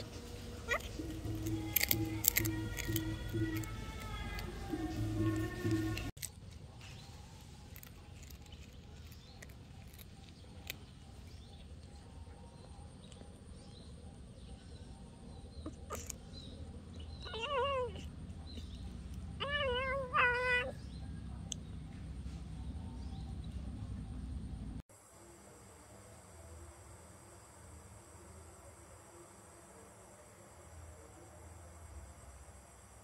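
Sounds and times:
cat meowing: 0.6s - 6.0s, 17.0s - 18.1s, 19.4s - 20.8s.

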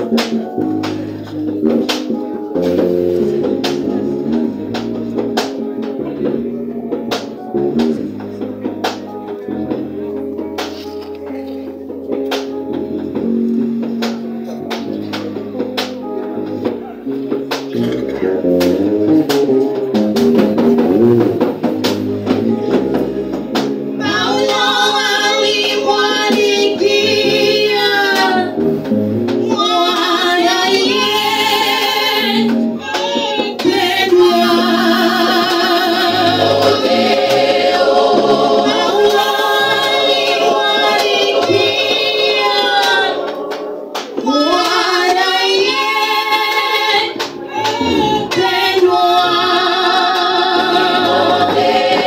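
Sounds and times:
women's choir singing gospel: 0.0s - 10.8s, 22.3s - 52.0s
instrumental accompaniment: 0.0s - 52.0s
singer on microphone: 23.9s - 28.6s, 29.4s - 52.0s.

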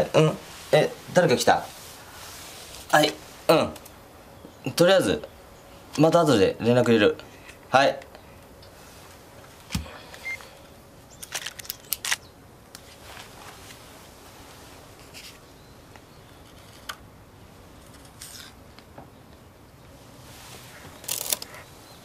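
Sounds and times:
faint room hiss: 0.0s - 22.0s
short rustle: 0.3s - 3.5s, 12.8s - 15.5s, 20.0s - 21.8s.

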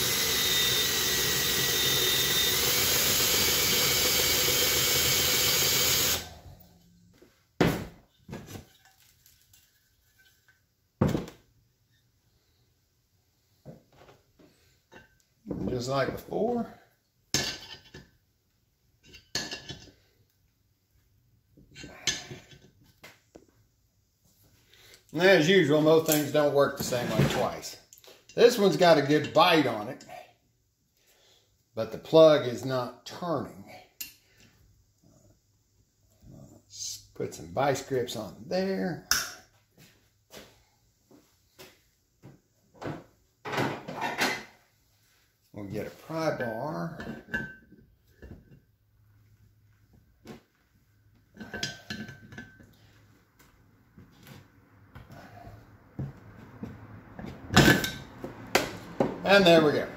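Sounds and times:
metal tool clinking and scraping: 51.3s - 52.9s.

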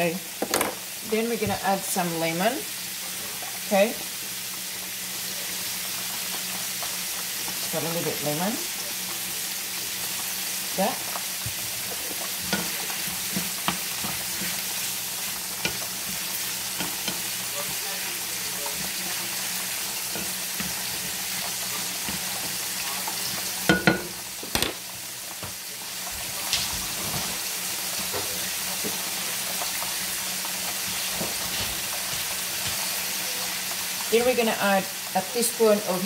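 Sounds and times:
shrimp sizzling in butter: 0.0s - 36.0s
wooden spoon scraping: 11.1s - 23.5s.

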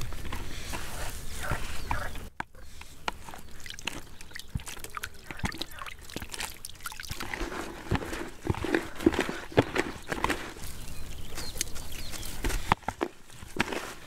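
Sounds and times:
bread sloshing in water: 3.0s - 11.2s
water splashing and dripping: 3.0s - 11.7s.

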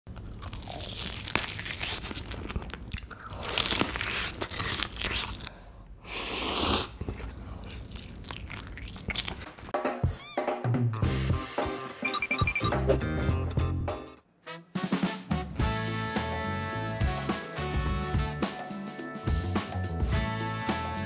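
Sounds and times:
crunchy chewing of food: 0.1s - 5.6s, 6.4s - 9.7s
music: 9.8s - 21.0s.

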